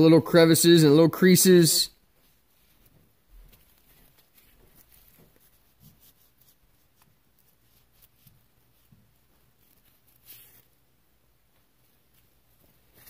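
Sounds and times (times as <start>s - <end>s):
paper towel rubbing on wrench: 2.2s - 10.8s.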